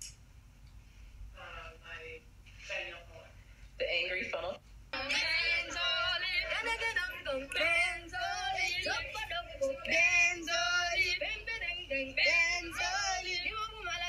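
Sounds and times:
woman singing with vibrato: 5.0s - 14.0s.

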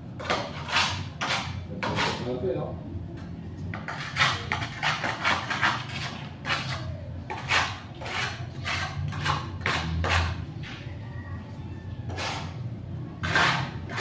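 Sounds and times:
trowel scraping wet concrete: 0.2s - 2.3s, 3.8s - 10.4s, 12.1s - 12.6s, 13.2s - 14.0s.

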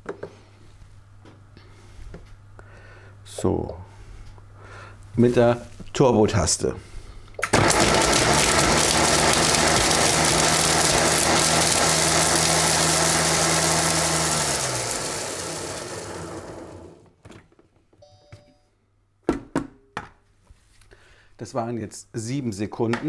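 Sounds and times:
food processor grinding: 7.5s - 17.1s
faint short tone: 18.0s - 18.8s.

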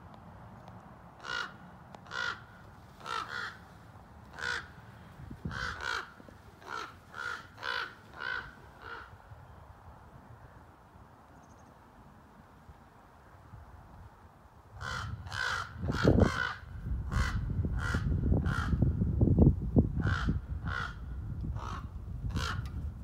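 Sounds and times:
crows cawing: 1.2s - 9.2s, 14.8s - 18.8s, 20.0s - 22.7s.

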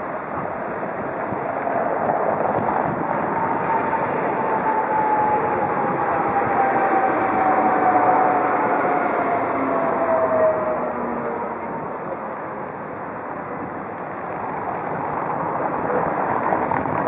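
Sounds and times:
falling whine: 0.0s - 13.0s.

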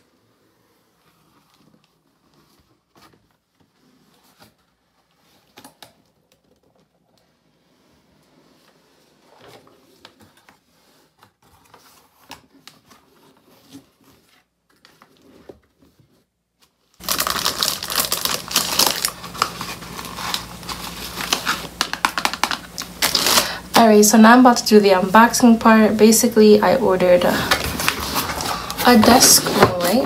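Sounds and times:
plastic wrapping crinkling: 16.7s - 30.0s.

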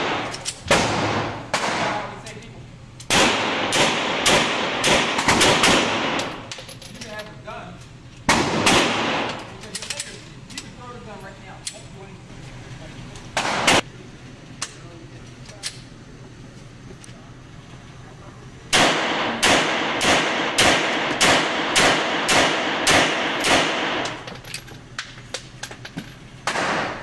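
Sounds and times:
pistol shots echoing indoors: 0.0s - 2.2s, 3.1s - 6.5s, 8.3s - 9.5s, 13.4s - 13.8s, 18.7s - 24.3s, 26.4s - 27.0s.

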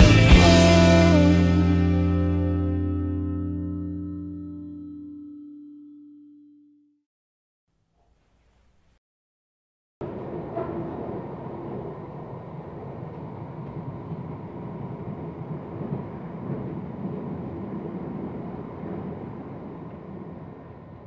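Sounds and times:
train rumble inside carriage: 10.0s - 21.0s.

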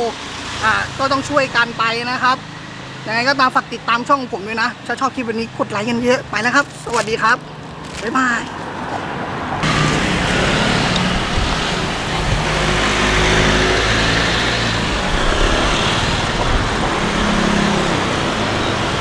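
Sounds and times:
cars driving past: 7.5s - 19.0s.

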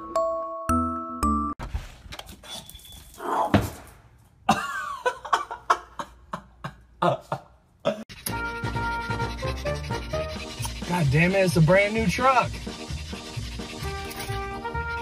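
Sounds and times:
dog snorting and snuffling: 8.1s - 11.5s, 12.6s - 14.6s.

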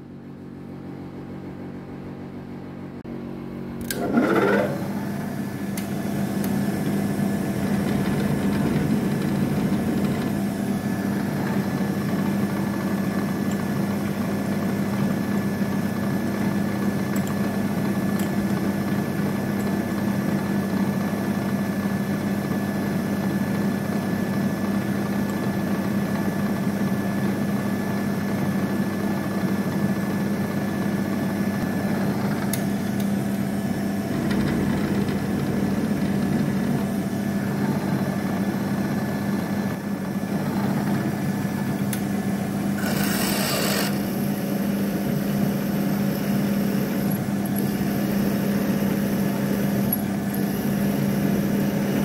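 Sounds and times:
click: 3.8s - 4.0s, 5.8s - 6.6s, 17.2s - 17.4s, 18.2s - 18.6s, 32.5s - 33.1s, 41.9s - 42.1s
milling machine motor whine: 3.8s - 52.0s.

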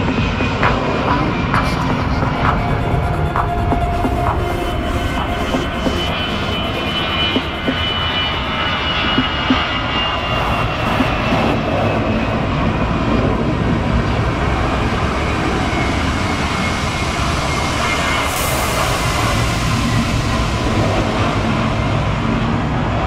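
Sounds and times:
high turbine whine: 0.0s - 23.0s
jet engines taxiing: 0.0s - 23.0s.

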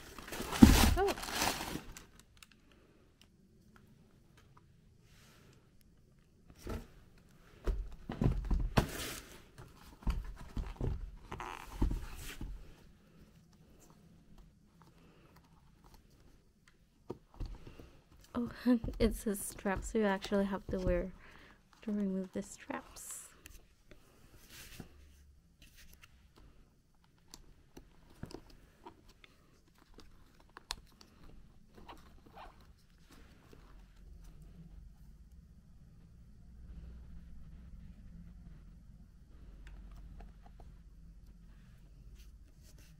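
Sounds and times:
tissue paper rustling: 0.0s - 2.1s.

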